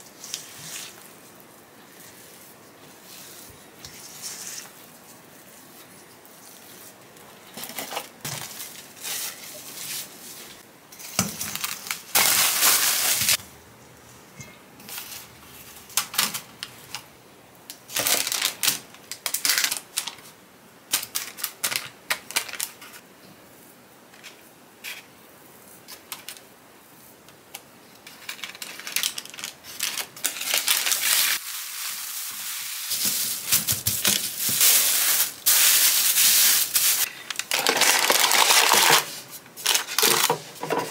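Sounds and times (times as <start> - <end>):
plastic wrap crinkling: 4.0 - 13.4, 17.8 - 20.3, 20.9 - 23.0, 28.0 - 40.9.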